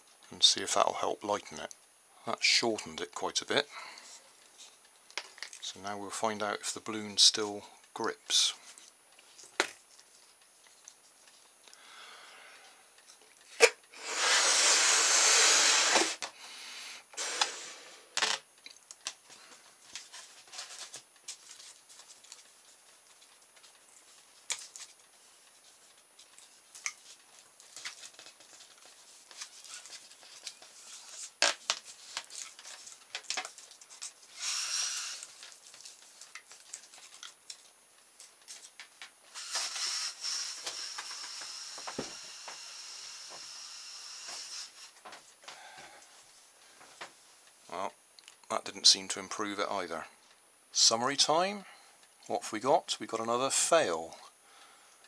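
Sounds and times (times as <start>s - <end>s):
crackles and light clicks: 0.0s - 2.0s, 2.6s - 14.0s, 18.2s - 42.6s, 44.2s - 53.2s
air hissing from balloon: 13.9s - 18.2s, 34.3s - 35.4s, 39.3s - 45.0s.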